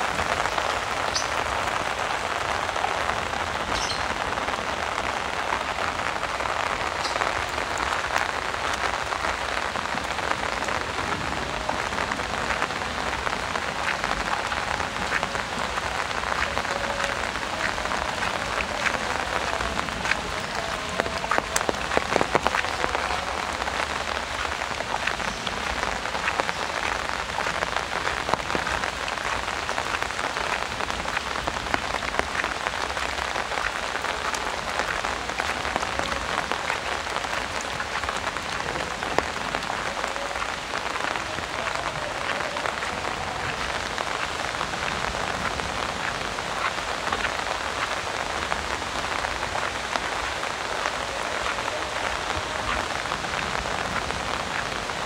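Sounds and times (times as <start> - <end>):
heavy rain falling: 0.0 - 55.0
raindrops tapping on umbrella: 0.0 - 55.0.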